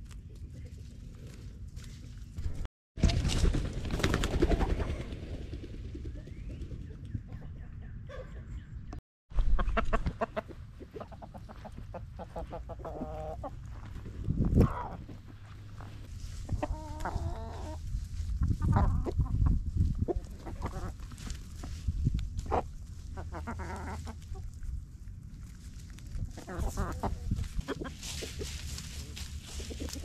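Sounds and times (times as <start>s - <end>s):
scratching and rustling in leaves: 0.0s - 3.6s, 11.0s - 30.0s
drawn-out chicken calls: 9.4s - 24.6s, 26.3s - 30.0s
chickens clucking: 9.4s - 24.8s, 25.8s - 30.0s.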